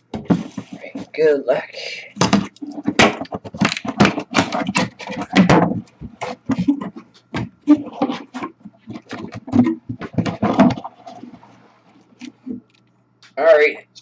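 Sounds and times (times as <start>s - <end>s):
cardboard box scraping and rustling: 0.2s - 1.2s.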